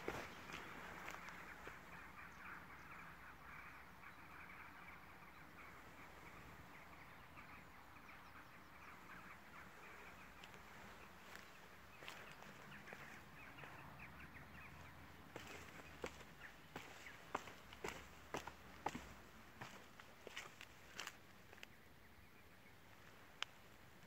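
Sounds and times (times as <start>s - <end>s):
distant birds calling: 0.0s - 24.0s.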